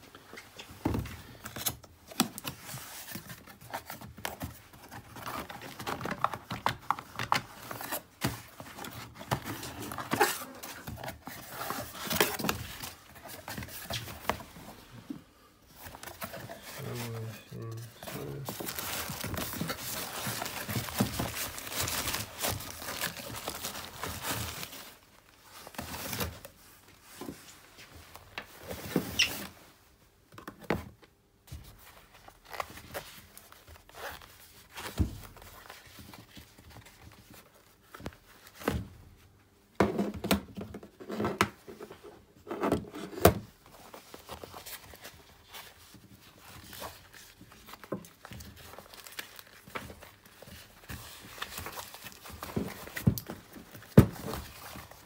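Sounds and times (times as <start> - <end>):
wrapping material rustling: 15.7 - 29.6, 43.6 - 55.0.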